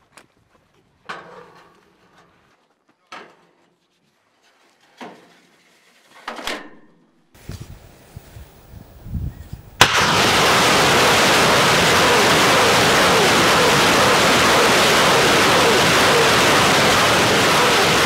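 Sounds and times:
rocket launchers firing: 9.8 - 18.0.

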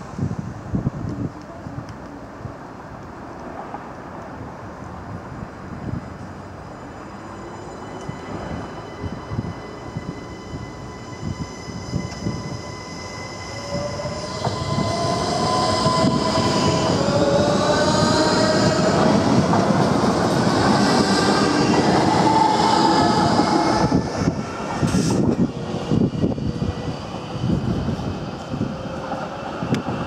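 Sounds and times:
train whine rising in pitch: 6.6 - 30.0
train wheels rumbling on rails: 7.9 - 30.0.

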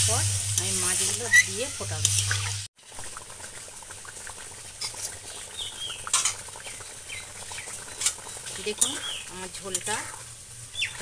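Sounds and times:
curry bubbling and popping: 0.1 - 11.0
small birds chirping: 5.3 - 9.5, 10.7 - 11.0.

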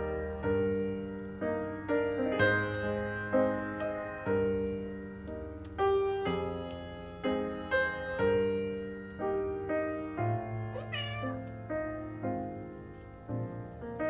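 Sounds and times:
piano background music: 0.0 - 14.0
cat meowing: 10.7 - 11.5.

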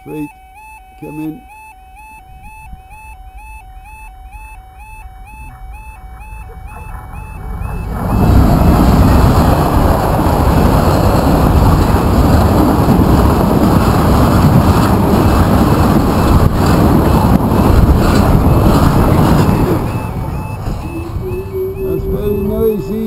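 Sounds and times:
diesel locomotive passing: 3.6 - 23.0
freight wagons rumbling by: 5.1 - 23.0.

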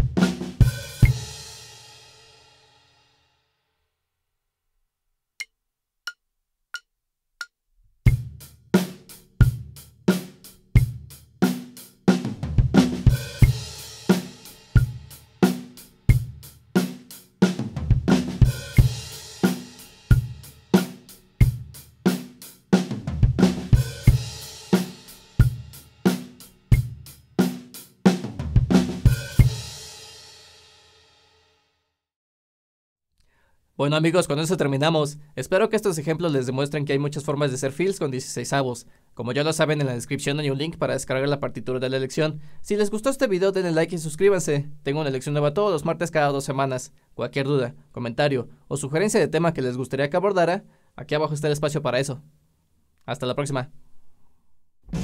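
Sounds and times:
drum kit playing a groove: 0.0 - 2.1, 8.1 - 30.4.

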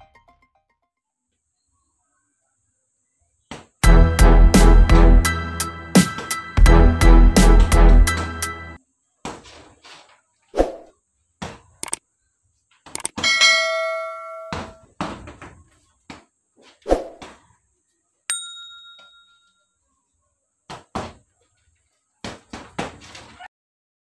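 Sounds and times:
short high ding: 13.2 - 14.7, 18.3 - 19.6
bell-like chime: 18.3 - 19.7.

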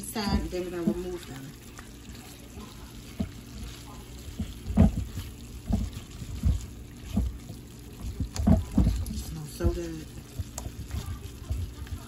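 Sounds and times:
soft sizzle: 0.0 - 12.0
meat thudding against pan: 4.2 - 12.0.

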